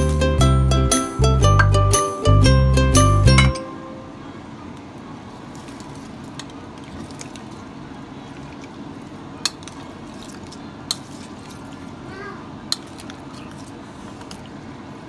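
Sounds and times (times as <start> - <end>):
spoon clinking on glass bowl: 3.3 - 3.7
wet squishing of stirred meat: 4.8 - 15.0.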